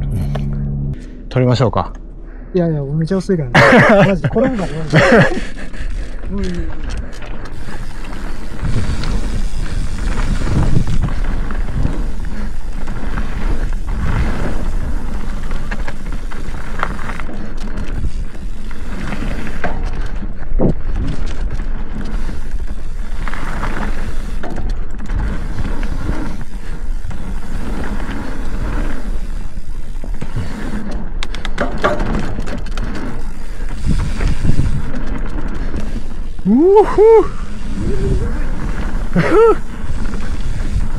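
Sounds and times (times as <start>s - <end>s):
steady low rumble: 0.0s - 31.3s, 32.7s - 40.9s
bike tyres rolling on dirt: 3.1s - 40.9s
bike clattering over bumps: 4.8s - 36.5s.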